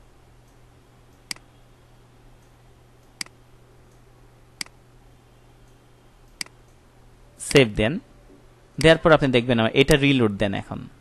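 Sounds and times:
faint low hum: 0.0s - 11.0s
computer mouse clicks: 0.4s - 1.5s, 2.4s - 4.0s, 5.6s - 6.8s.

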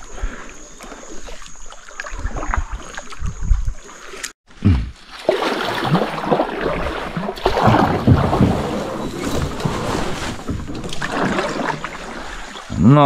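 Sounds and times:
small water splashes: 0.0s - 4.4s, 5.0s - 12.8s
river water rushing and gurgling: 5.0s - 13.0s.

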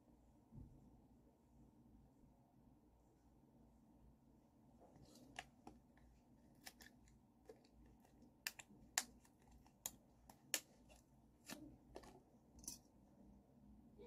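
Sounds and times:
hands handling small objects: 4.9s - 12.9s.

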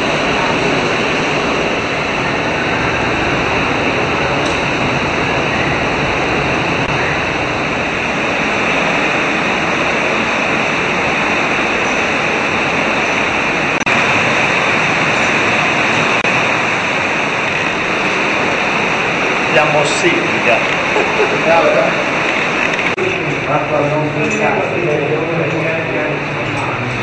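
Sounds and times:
stream rushing over rocks: 0.0s - 27.0s.

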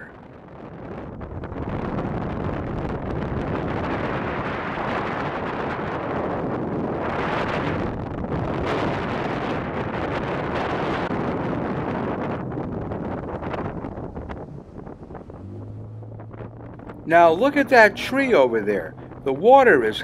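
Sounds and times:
boat motor: 0.0s - 20.0s
wind rushing over microphone: 0.0s - 20.0s
water rushing past hull: 11.1s - 20.0s.

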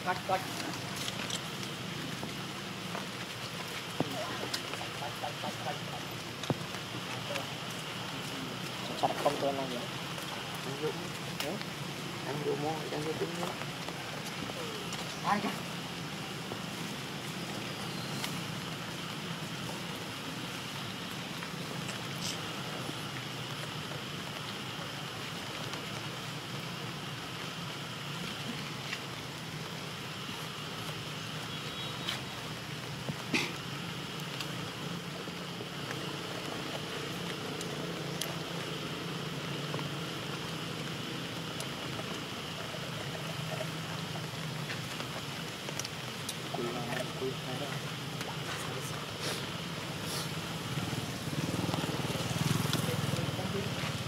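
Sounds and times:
faint high hiss: 0.0s - 54.0s.

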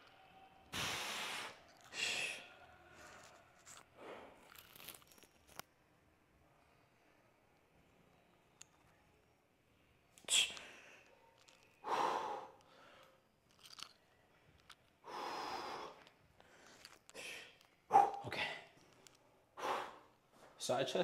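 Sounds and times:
man breathing forcefully: 11.8s - 13.0s.

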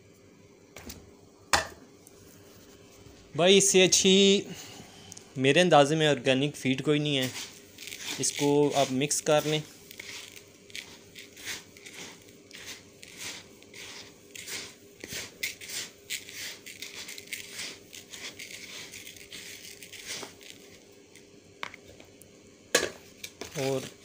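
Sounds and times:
grain stirred by hand: 5.8s - 21.2s, 23.4s - 24.0s.

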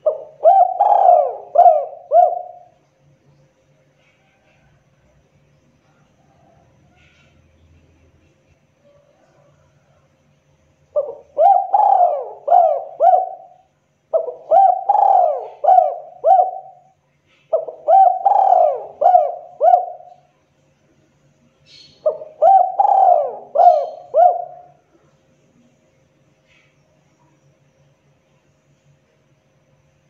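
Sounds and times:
dove cooing: 0.0s - 2.8s, 10.9s - 20.3s, 21.7s - 24.9s.

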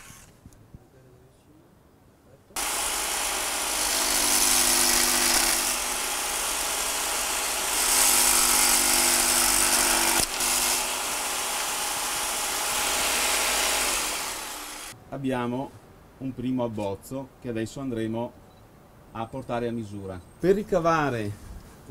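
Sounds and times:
electric jigsaw cutting wood: 0.0s - 0.3s, 2.6s - 15.0s.

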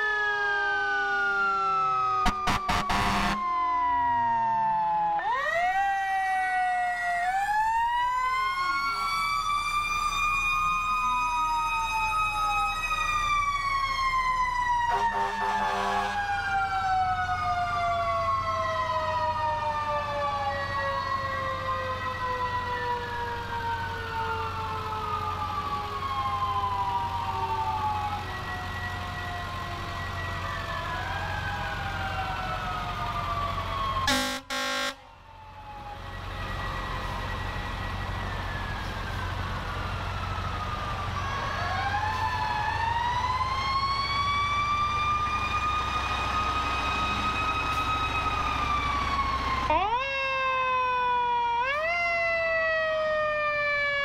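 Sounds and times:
fire truck sirens wailing: 0.0s - 54.0s
horn blast: 2.2s - 3.4s, 14.9s - 16.2s, 34.1s - 35.0s.

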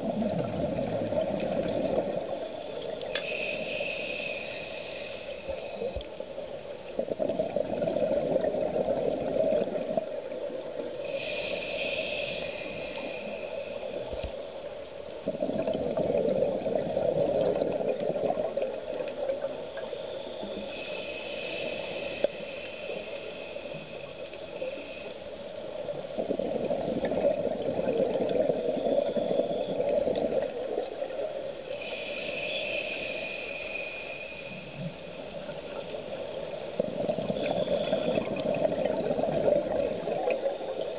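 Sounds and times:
exhaled bubbles gurgling: 0.0s - 6.0s, 6.9s - 14.2s, 15.2s - 25.0s, 25.7s - 40.9s
regulator inhale hiss: 2.0s - 6.6s, 10.7s - 14.6s, 18.8s - 26.0s, 31.5s - 38.6s.

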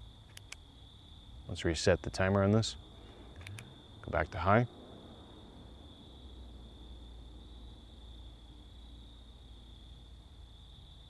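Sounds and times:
crickets trilling: 0.0s - 11.0s
low background rumble: 0.0s - 11.0s.

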